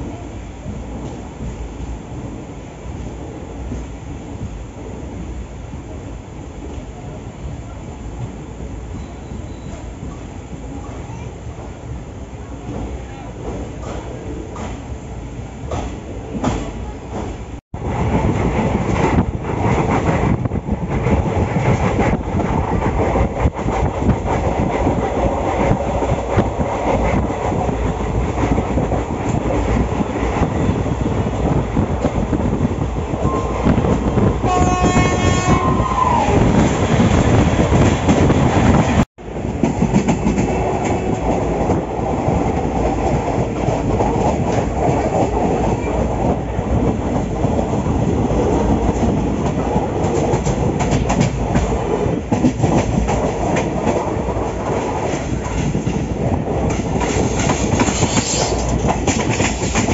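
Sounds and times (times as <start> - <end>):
train wheels rumbling on track: 0.0 - 59.9
train horn: 34.4 - 36.6.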